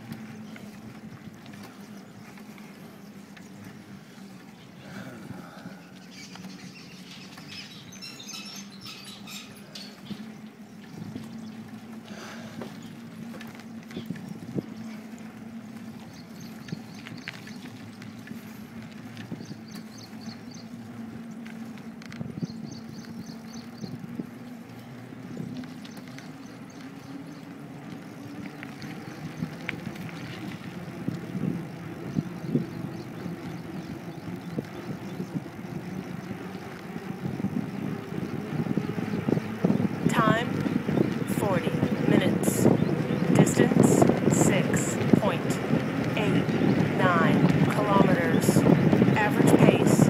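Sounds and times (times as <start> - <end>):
road rumble: 0.0 - 50.0
running footsteps on pavement: 0.0 - 50.0
steady low hum: 0.0 - 50.0
bird chirping: 5.6 - 11.8, 19.3 - 21.4, 22.4 - 24.1
wind on microphone: 15.9 - 24.5, 28.7 - 50.0.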